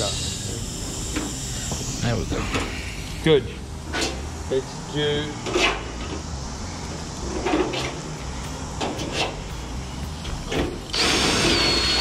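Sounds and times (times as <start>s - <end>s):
cordless drill whine: 10.5s - 12.0s.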